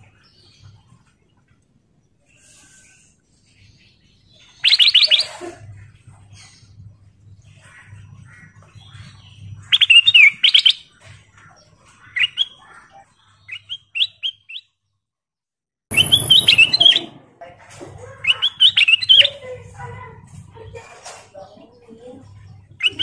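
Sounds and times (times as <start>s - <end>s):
bird singing whistled phrases: 4.6s - 5.2s, 13.5s - 14.6s, 15.9s - 17.2s, 18.3s - 19.3s, 22.8s - 23.0s.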